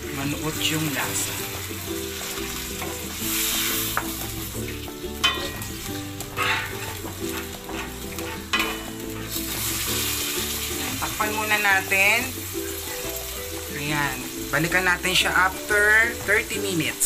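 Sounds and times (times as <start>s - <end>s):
meat sizzling in oil: 0.0s - 17.0s
spatula scraping pan: 0.8s - 11.1s.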